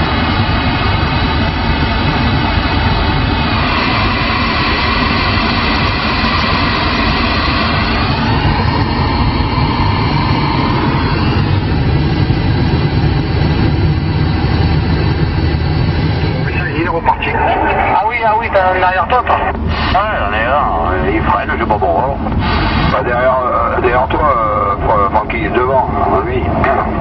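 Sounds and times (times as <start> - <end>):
radio static hiss: 16.4 - 27.0.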